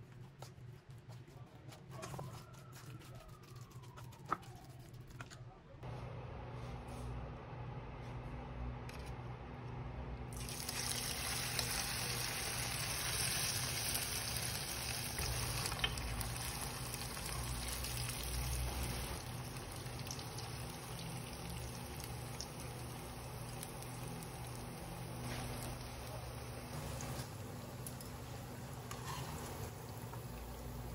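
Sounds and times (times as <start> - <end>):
deep-frying sizzle: 10.3 - 30.9.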